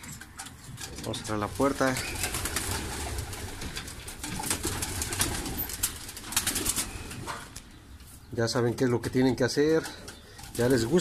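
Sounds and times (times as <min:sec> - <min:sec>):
pigeons cooing: 0:00.1 - 0:08.0.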